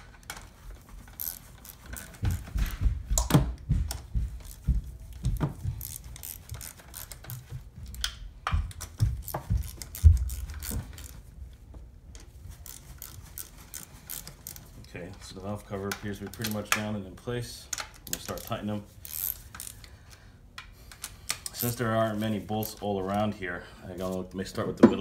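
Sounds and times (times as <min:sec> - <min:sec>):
ratchet clicking: 0:01.2 - 0:02.5, 0:05.7 - 0:08.1, 0:08.8 - 0:11.2, 0:12.6 - 0:14.7, 0:17.7 - 0:19.9.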